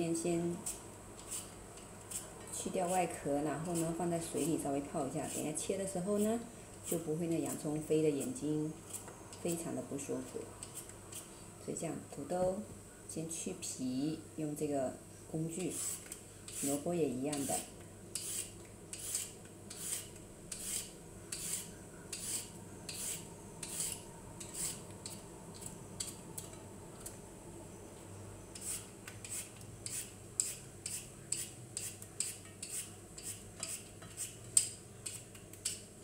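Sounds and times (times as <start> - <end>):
peeler scraping carrot: 0.6 - 9.4, 15.5 - 26.1, 28.5 - 35.8.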